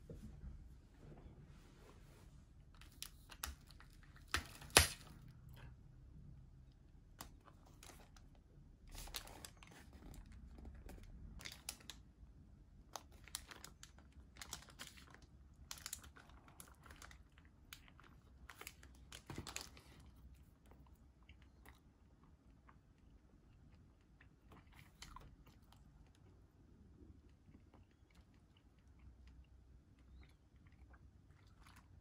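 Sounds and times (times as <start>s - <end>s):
paper wrapper crinkling: 8.9s - 12.0s, 13.0s - 20.0s.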